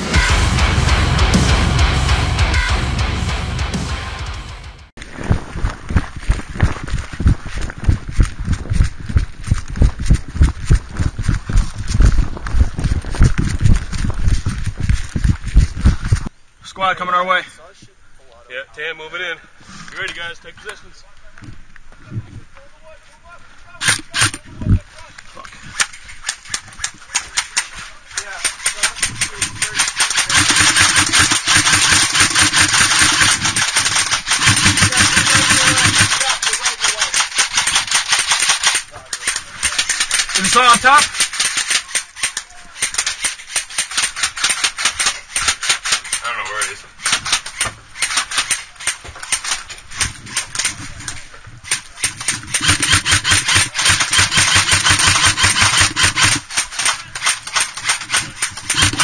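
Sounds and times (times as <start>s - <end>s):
airsoft gun firing full auto: 29.2s - 38.8s, 52.2s - 59.0s.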